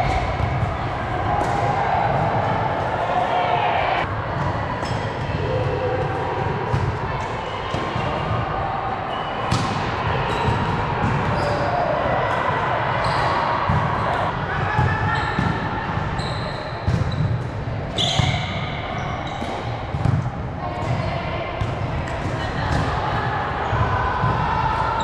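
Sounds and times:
shoe squeaks: 16.2s - 17.2s, 18.0s - 19.5s.

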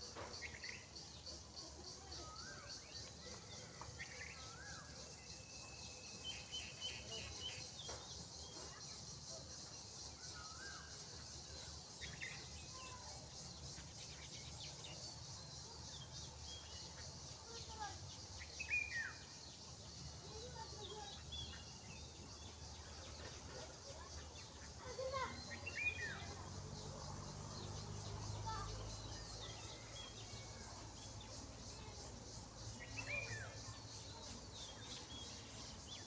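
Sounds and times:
insects buzzing: 0.0s - 36.0s
small birds chirping: 0.0s - 36.0s.

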